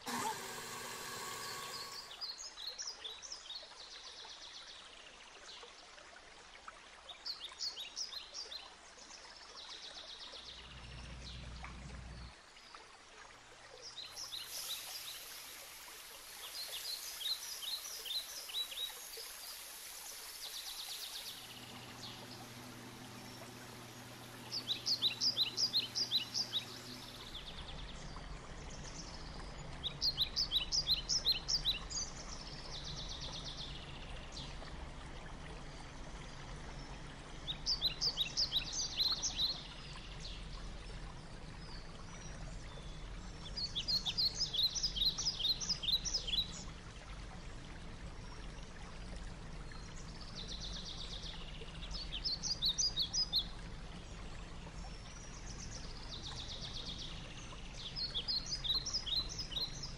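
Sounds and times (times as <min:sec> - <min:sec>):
birds chirping in trills: 0:10.5 - 0:12.3, 0:20.4 - 0:33.8
steady background hiss: 0:14.2 - 0:31.2.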